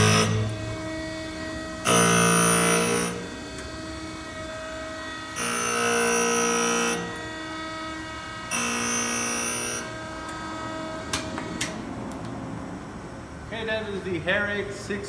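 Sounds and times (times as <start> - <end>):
ringing metal grinding: 0.0 - 3.3, 5.3 - 7.2
machine hum: 0.0 - 15.0.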